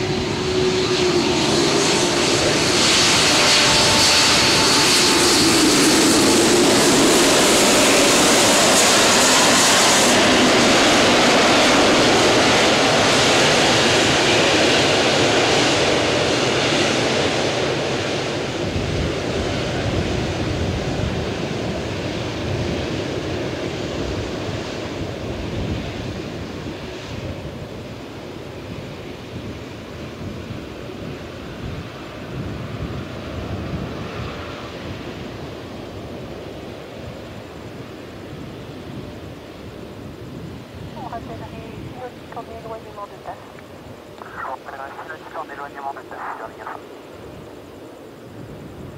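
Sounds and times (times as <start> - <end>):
jet engines roaring: 0.0 - 25.1.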